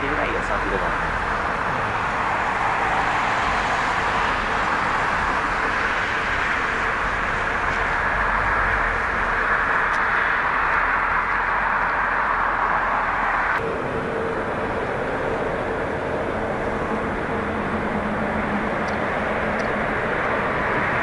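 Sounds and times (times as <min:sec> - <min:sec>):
jet engine rush: 0:00.0 - 0:21.0.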